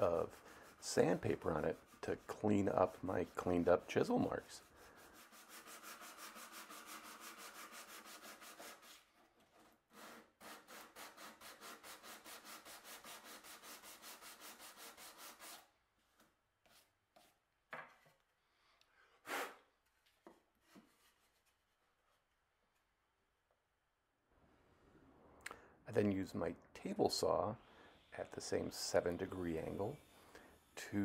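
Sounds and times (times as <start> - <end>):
sandpaper rubbing wood: 0.0 - 9.1, 9.9 - 15.7, 28.3 - 30.7.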